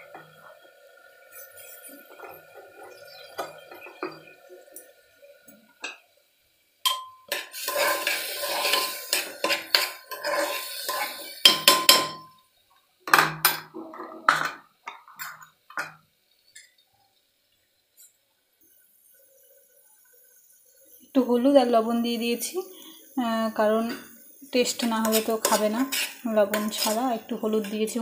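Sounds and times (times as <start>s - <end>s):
spoon stirring rice in metal pot: 6.8s - 12.2s, 23.8s - 28.0s
spoon clinking against pot: 6.9s - 7.4s.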